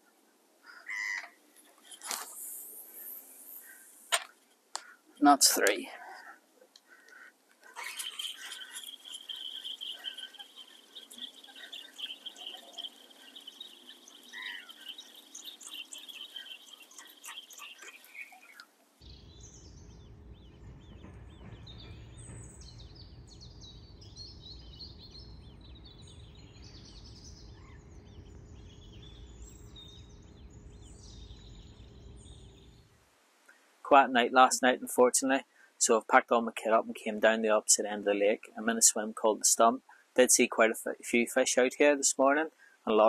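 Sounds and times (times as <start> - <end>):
birds chirping: 0.0 - 33.0
steady high chirring: 1.5 - 4.1, 7.6 - 33.1
low steady rumble: 19.0 - 33.1.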